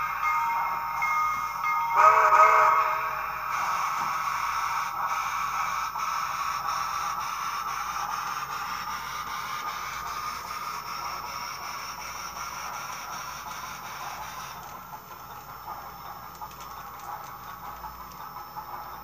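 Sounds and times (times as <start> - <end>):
model steam locomotive hissing: 0.0 - 19.0.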